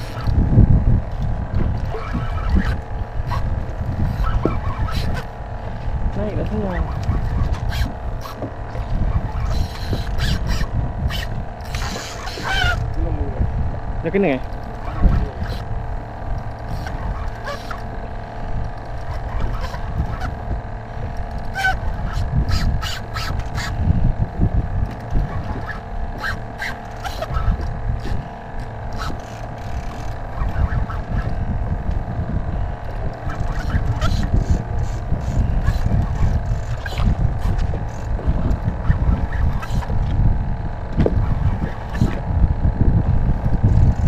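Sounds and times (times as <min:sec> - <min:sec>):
steady motor hum: 0:00.0 - 0:44.0
wind rumble on microphone: 0:00.0 - 0:44.0.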